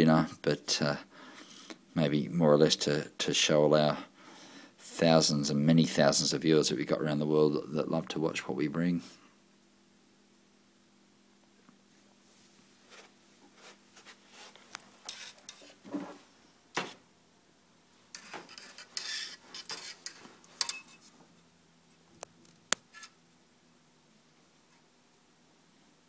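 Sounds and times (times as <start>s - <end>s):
rustling and scraping: 12.0s - 17.1s, 18.1s - 23.2s.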